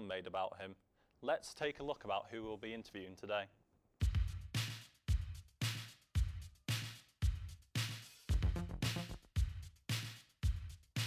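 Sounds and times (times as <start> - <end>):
punchy drum and bass beat: 4.0 - 11.0.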